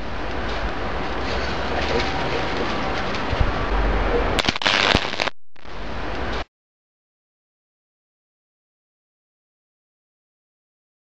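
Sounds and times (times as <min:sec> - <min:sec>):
steady hiss: 0:00.0 - 0:06.5
electrical arcing pops and crackling: 0:04.4 - 0:06.5.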